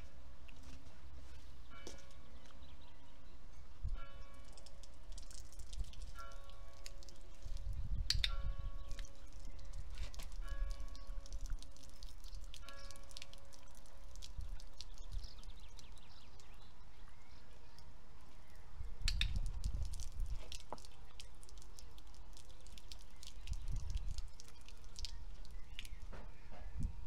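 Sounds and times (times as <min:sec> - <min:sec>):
wind rumble on microphone: 0:03.6 - 0:04.2, 0:07.2 - 0:12.6, 0:14.2 - 0:16.6, 0:18.5 - 0:20.7, 0:23.2 - 0:27.0.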